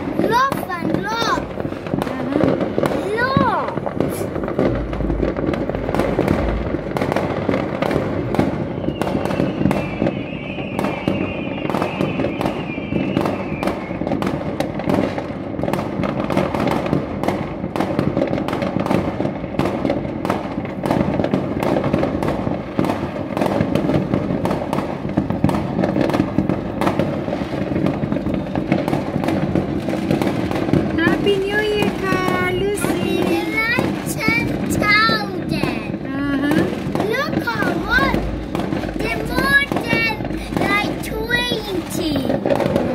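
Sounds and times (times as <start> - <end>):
fireworks bangs and crackles: 0.0 - 42.9
wavering firework whistle: 8.5 - 14.4.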